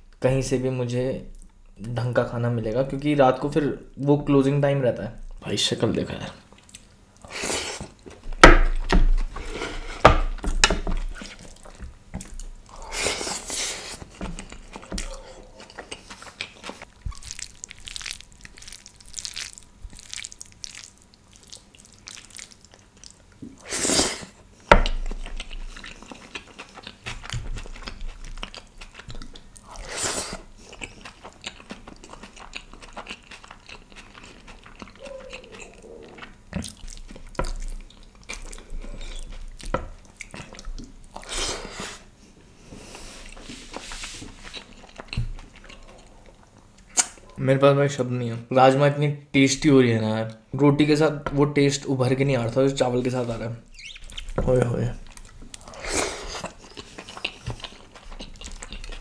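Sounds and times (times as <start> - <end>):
wet chewing and lip smacks: 14.0 - 23.6, 24.8 - 41.3, 44.4 - 47.4, 53.7 - 54.4, 55.0 - 59.0.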